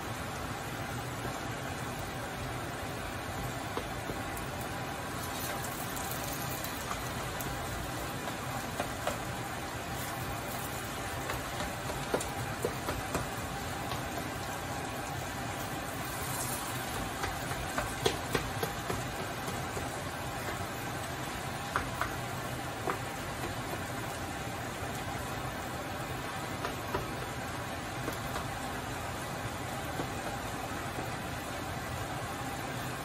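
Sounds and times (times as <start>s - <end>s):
potatoes sizzling in oil: 4.3s - 21.8s.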